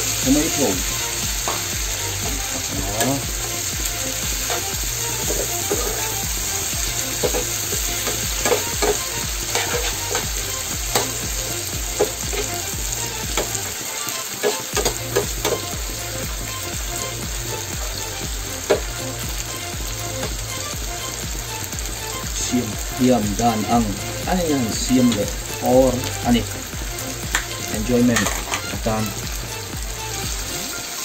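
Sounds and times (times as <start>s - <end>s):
onions sizzling in frying pan: 0.0s - 31.0s
metal spatula scraping pan: 7.2s - 10.3s.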